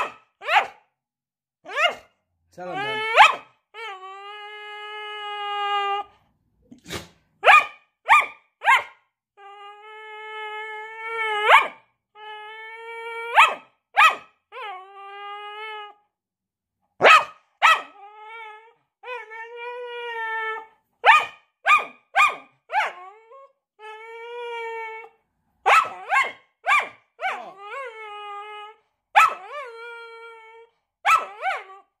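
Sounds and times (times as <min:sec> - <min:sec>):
dog barking: 0:00.0 - 0:00.8, 0:01.7 - 0:02.1, 0:03.1 - 0:03.5, 0:06.9 - 0:09.0, 0:11.4 - 0:11.8, 0:13.3 - 0:14.3, 0:17.0 - 0:18.0, 0:21.0 - 0:23.0, 0:25.6 - 0:27.5, 0:29.2 - 0:29.4, 0:31.0 - 0:31.7
dog howling: 0:01.7 - 0:02.0, 0:02.6 - 0:06.2, 0:08.7 - 0:16.1, 0:17.0 - 0:32.0.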